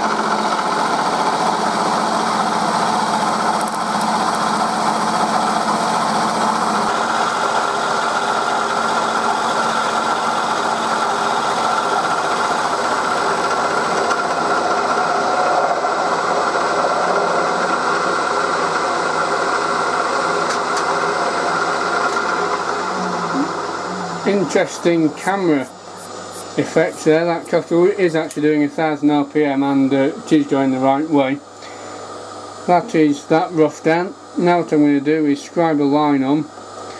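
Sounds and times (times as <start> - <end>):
milling machine hum: 0.0 - 36.9
steady high tone: 22.9 - 27.9.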